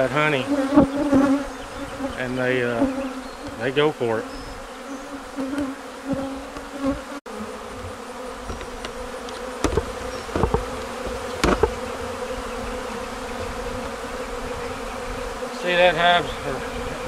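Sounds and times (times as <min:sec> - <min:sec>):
honey bees buzzing: 0:00.0 - 0:17.0
sharp knocks: 0:07.8 - 0:11.8.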